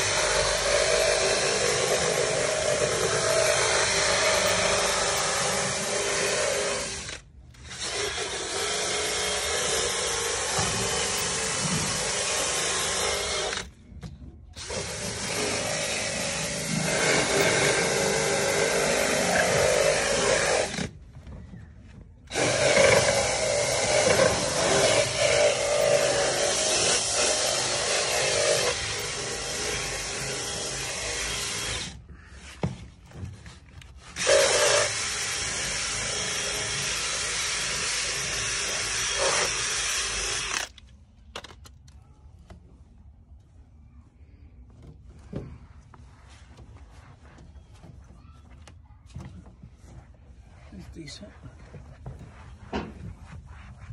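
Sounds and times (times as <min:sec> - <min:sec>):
cordless drill spinning scrub pad: 0:00.0 - 0:13.8, 0:14.6 - 0:20.9, 0:22.3 - 0:32.0, 0:34.0 - 0:40.8.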